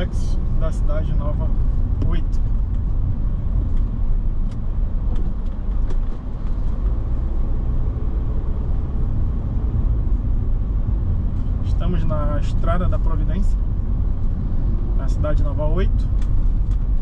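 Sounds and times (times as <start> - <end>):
car engine and road noise: 0.0 - 17.0.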